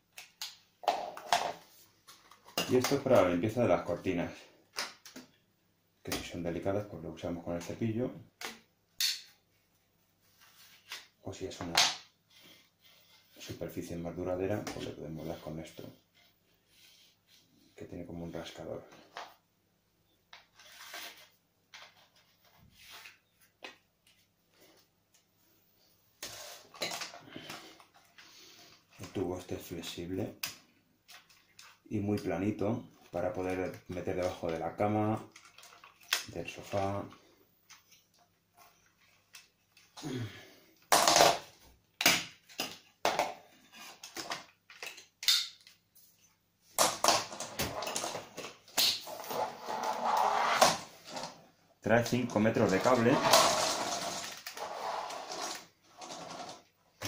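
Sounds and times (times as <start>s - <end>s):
plastic parts clicking and knocking: 35.2s - 36.3s, 40.8s - 45.8s.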